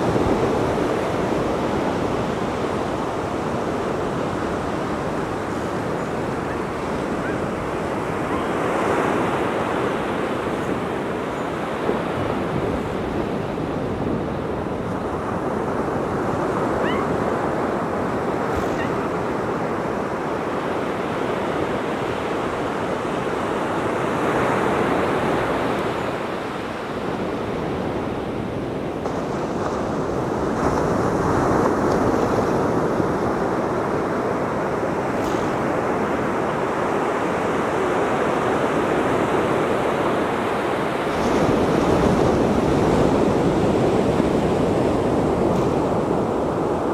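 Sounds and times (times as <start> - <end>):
ocean surf washing onto beach: 0.0 - 46.9.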